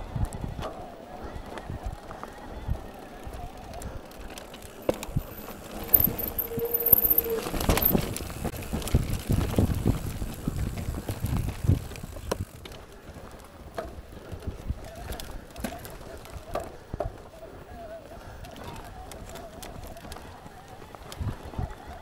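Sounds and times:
bike knocking and rattling: 0.0s - 22.0s
brief high squeal: 5.9s - 8.0s.

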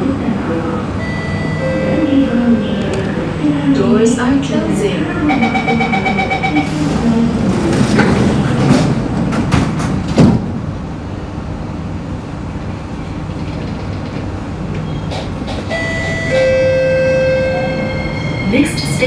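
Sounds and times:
train low hum: 0.0s - 19.0s
train doors closing with a knock: 6.2s - 10.7s, 13.1s - 18.4s.

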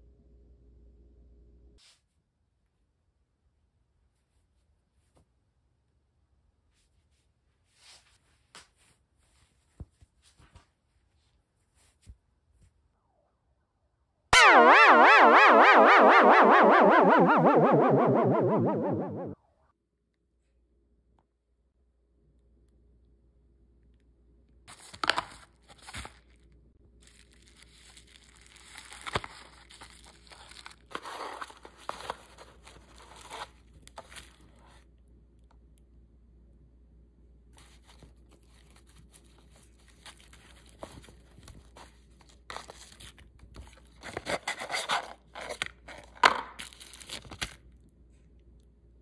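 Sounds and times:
plastic packaging crinkling: 24.7s - 34.8s, 37.6s - 47.7s
sharp plastic crackle: 24.9s - 34.6s.

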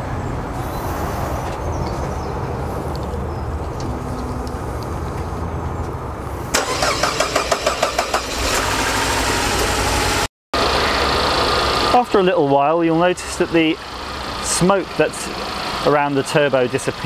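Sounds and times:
car engine cranking and starting: 6.5s - 12.3s.

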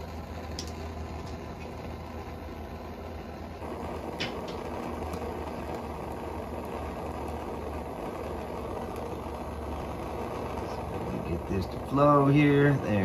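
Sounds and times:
propane torch burning: 0.0s - 13.0s.

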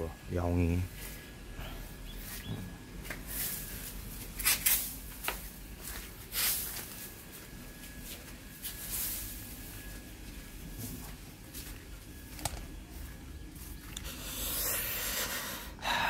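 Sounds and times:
footsteps on dirt path: 5.0s - 14.1s.

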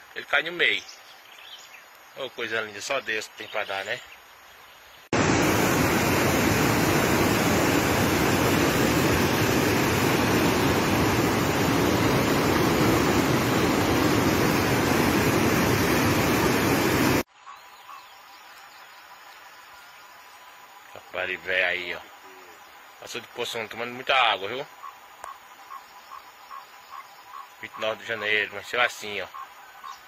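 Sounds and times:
faint rush of flooded river: 5.1s - 17.3s
floodwater rushing over rocks: 5.2s - 17.2s.

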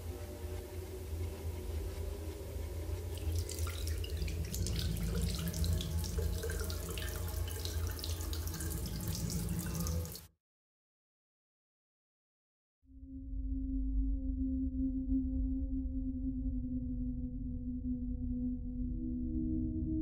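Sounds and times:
low steady hum: 0.0s - 10.2s
water splashing: 3.1s - 10.3s
tap water running into sink: 3.2s - 10.3s.

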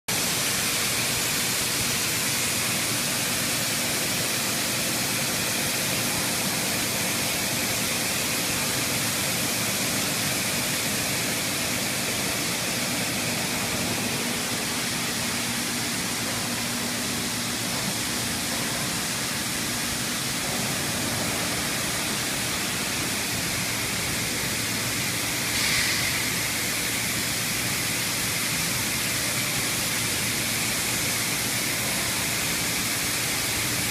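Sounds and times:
high-pressure coolant hiss: 0.1s - 33.9s.

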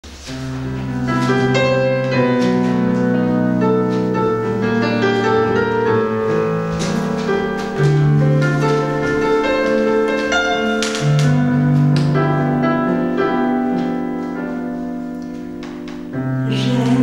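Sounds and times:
piano playing chords and melody: 0.0s - 17.0s.

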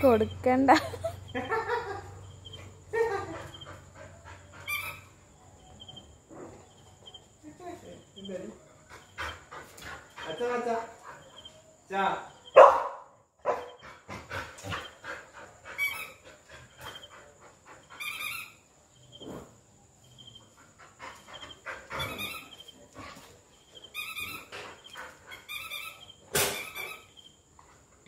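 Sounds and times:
dog whining: 4.6s - 5.1s, 21.9s - 22.7s.

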